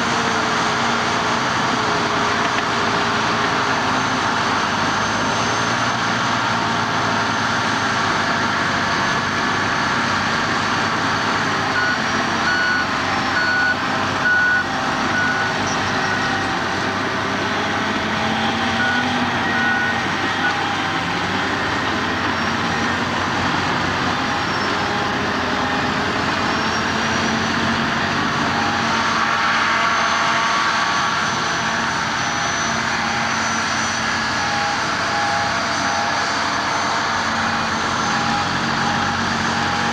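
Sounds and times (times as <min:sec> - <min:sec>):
truck diesel engine running: 0:00.0 - 0:39.9
low-pitched reversing alarm: 0:11.7 - 0:16.5
reversing alarm beeping: 0:11.7 - 0:16.5, 0:17.4 - 0:21.2, 0:32.1 - 0:39.9.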